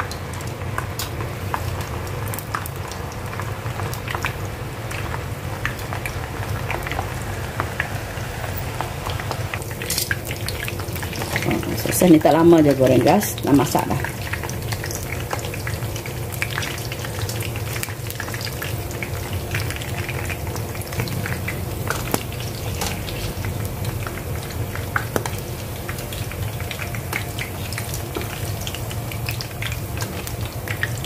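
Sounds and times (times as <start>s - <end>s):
sausages sizzling in oil: 0.0s - 31.0s
metal tongs clacking: 9.8s - 10.2s.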